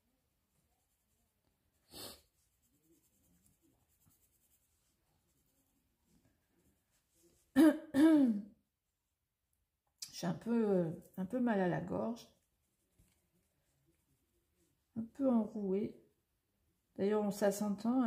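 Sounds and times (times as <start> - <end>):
pencil scratching on paper: 0.5 - 6.0
woman coughing hoarsely: 7.6 - 8.5.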